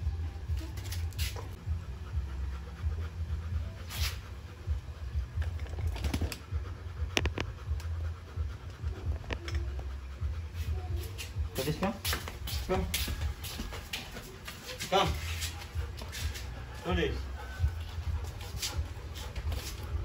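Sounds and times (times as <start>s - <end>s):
low rumble: 0.0s - 11.6s, 15.3s - 20.0s
dog panting: 0.0s - 20.0s.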